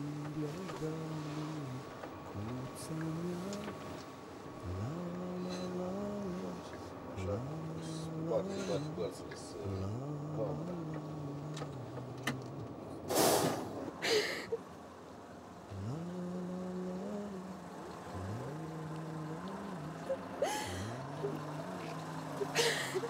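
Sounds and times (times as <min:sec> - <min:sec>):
bus diesel engine revving: 0:00.0 - 0:14.4, 0:15.5 - 0:23.0
air brake hisses: 0:13.1 - 0:13.8.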